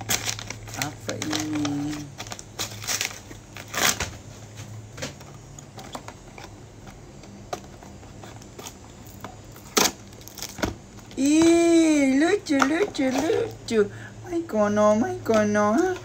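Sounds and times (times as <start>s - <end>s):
sharp cardboard snaps: 9.6s - 10.8s.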